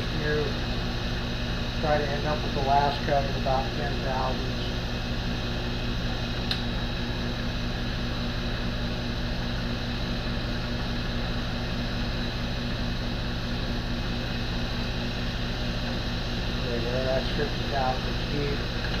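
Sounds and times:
mill spindle motor humming: 0.0 - 19.0
sharp click: 6.4 - 6.7.

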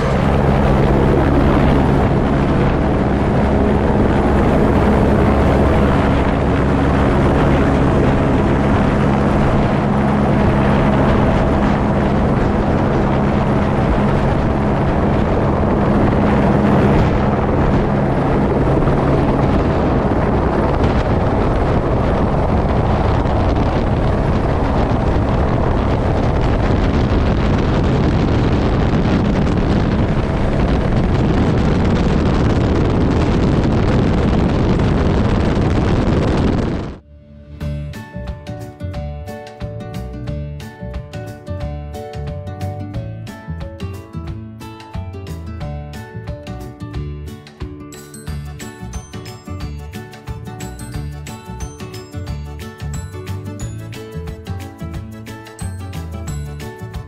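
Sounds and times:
helicopter engine hum: 0.0 - 38.1
wind noise on microphone: 0.0 - 57.0.

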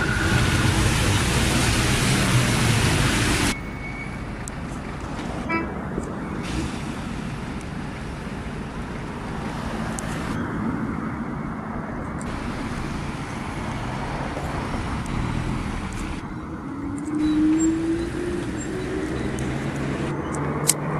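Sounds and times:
van engine passing close: 0.0 - 3.6, 12.3 - 20.9
cars driving past: 0.0 - 20.9
tyres on road: 0.0 - 20.9.

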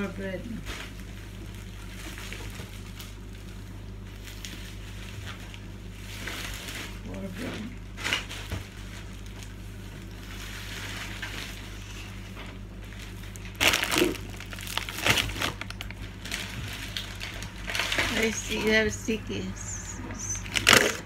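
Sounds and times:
plastic bags rustling and crinkling: 0.0 - 21.0.

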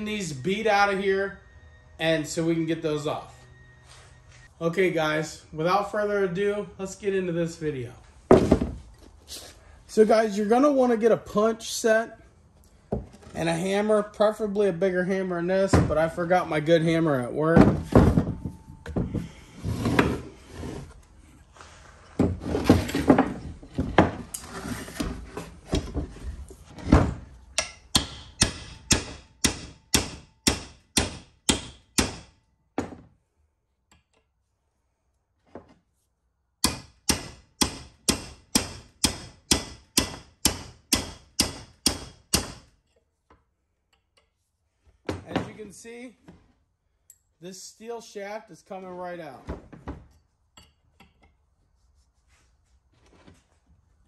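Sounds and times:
hammer striking a steel punch: 27.6 - 32.4, 36.6 - 42.7.

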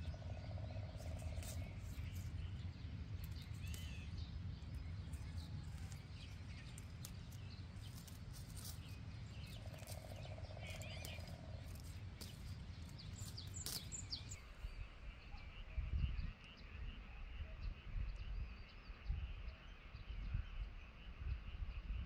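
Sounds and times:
birds chirping: 0.0 - 17.4
frogs and insects trilling: 9.4 - 12.0.

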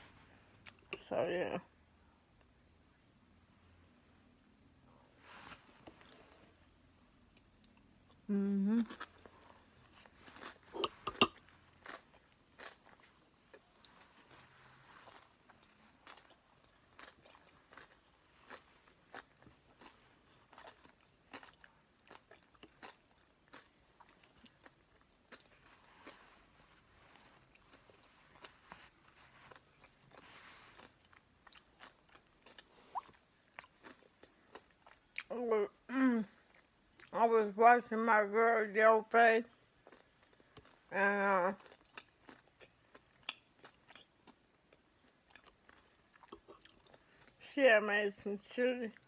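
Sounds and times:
person chewing crunchy chips: 5.8 - 35.3, 39.5 - 47.4.

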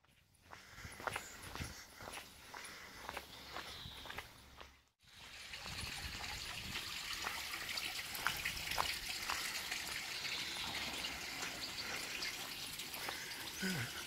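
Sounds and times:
water trickling on tarmac: 5.0 - 14.0.

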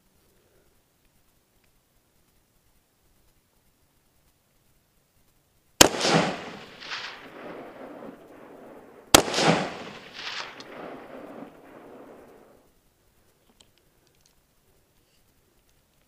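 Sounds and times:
rifle shots with rolling echo: 5.8 - 12.7.

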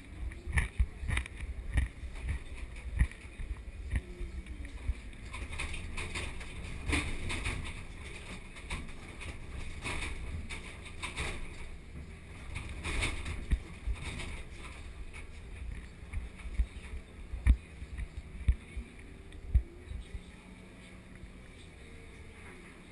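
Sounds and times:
diesel engine rumble: 0.0 - 22.9.

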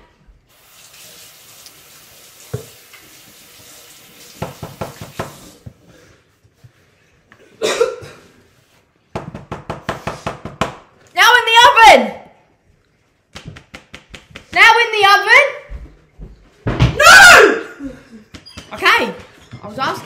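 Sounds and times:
water running from a tap: 0.5 - 5.6.

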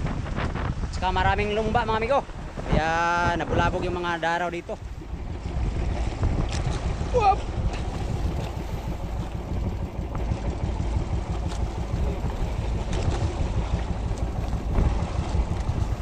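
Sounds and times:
sea waves: 0.0 - 16.0
wind buffeting microphone: 0.0 - 16.0.

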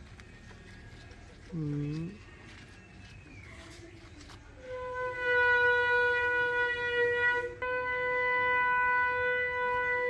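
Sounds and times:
steady blown horn note: 4.6 - 10.0.

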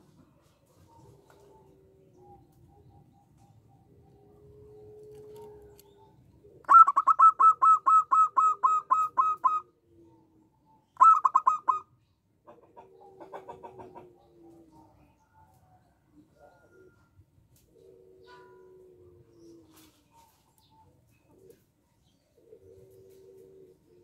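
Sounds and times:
dove cooing: 0.7 - 24.0.

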